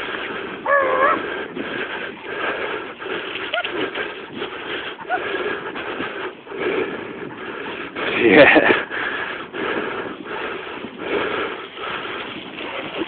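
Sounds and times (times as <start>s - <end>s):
scooter rolling on dirt path: 7.8s - 13.0s.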